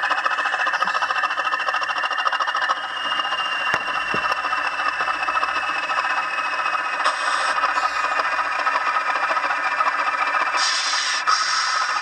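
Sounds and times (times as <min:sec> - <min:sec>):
diesel engine throb from small speaker: 0:00.0 - 0:12.0
high whine: 0:01.7 - 0:08.6.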